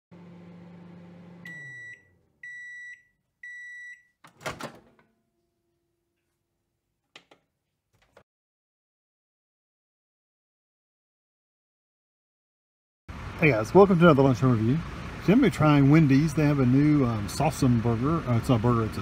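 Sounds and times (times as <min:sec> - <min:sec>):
microwave oven humming: 0:00.1 - 0:06.0
microwave door clunk and rattle: 0:04.3 - 0:05.1.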